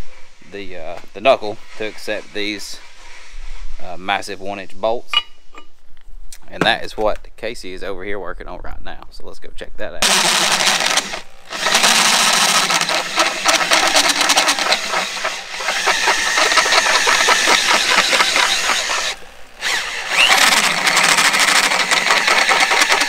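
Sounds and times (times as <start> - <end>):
heavy drill boring through metal: 10.0 - 23.0.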